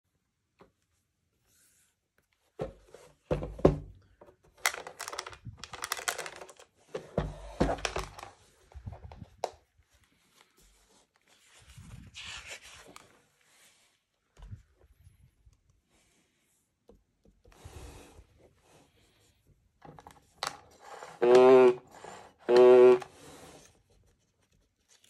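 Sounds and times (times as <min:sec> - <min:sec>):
pages rustling: 0:04.5 - 0:06.9, 0:07.8 - 0:13.8, 0:23.2 - 0:25.0.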